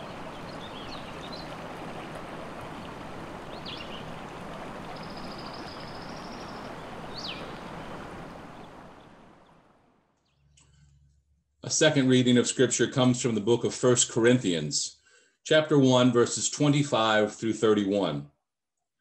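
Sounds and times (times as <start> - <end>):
river rapids rushing: 0.0 - 9.0
songbirds chirping: 0.0 - 10.7.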